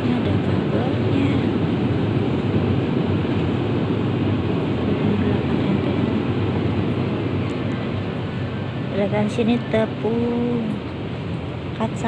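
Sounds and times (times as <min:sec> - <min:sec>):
supermarket background rumble: 0:00.0 - 0:02.2.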